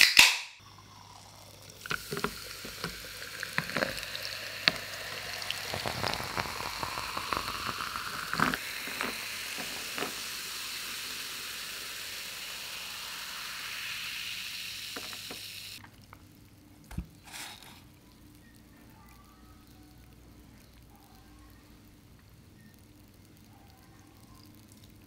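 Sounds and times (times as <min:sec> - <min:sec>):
cola fizzing in a glass: 0:00.6 - 0:15.8
ice crackling: 0:01.2 - 0:11.3.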